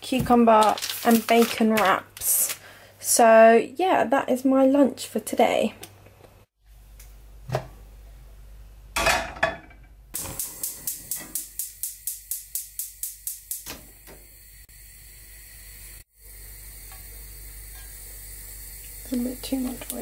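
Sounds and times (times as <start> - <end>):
spark igniter clicking: 10.2 - 14.2
gas burner hissing: 10.2 - 20.0.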